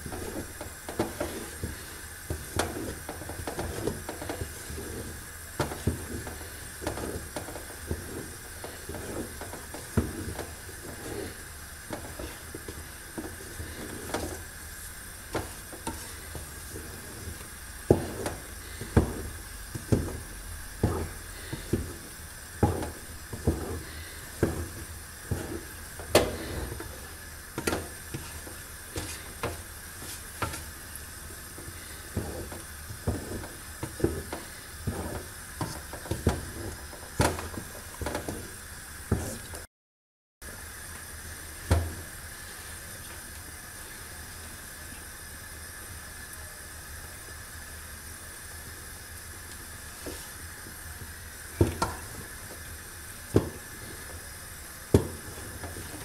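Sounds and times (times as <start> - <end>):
wooden spoon stirring thick paste: 0.0 - 39.6, 54.9 - 56.0
faint steady hiss: 0.0 - 39.7
dull knocks and squelches: 15.3 - 27.0.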